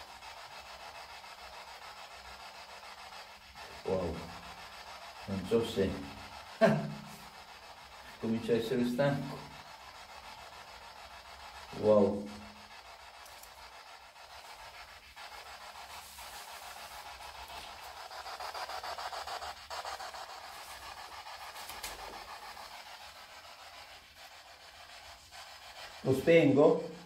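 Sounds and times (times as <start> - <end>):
radio static sweeping: 3.6 - 9.8.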